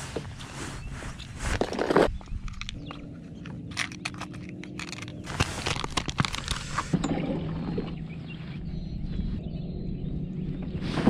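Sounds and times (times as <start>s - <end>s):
clicks and knocks of handled gear: 1.4s - 7.0s
rustling: 3.4s - 6.9s.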